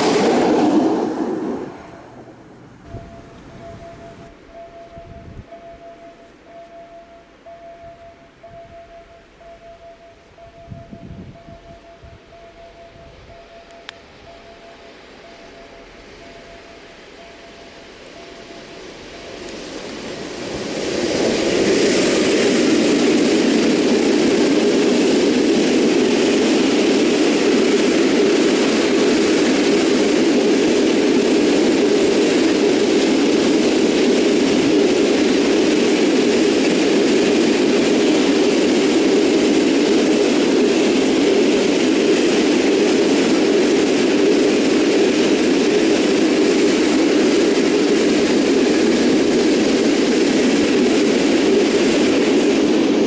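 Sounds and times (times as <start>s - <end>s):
freight train wheels on rails: 0.0s - 53.0s.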